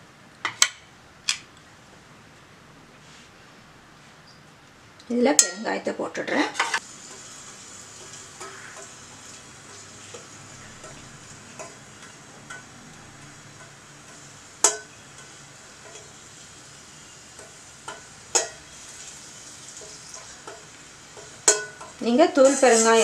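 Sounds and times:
faint sizzle of frying: 4.0s - 23.0s
ladle scraping a pan: 6.3s - 12.7s, 17.1s - 23.0s.

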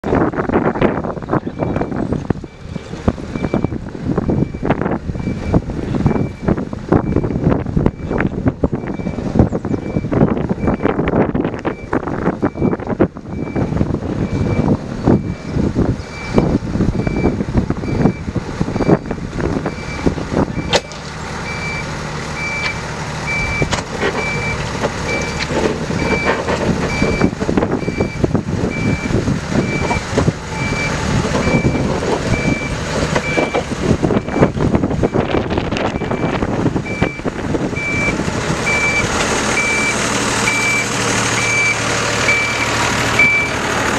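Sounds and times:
diesel locomotive running: 0.0s - 43.9s
warning beeper: 1.4s - 3.8s
clanks: 23.6s - 27.7s.

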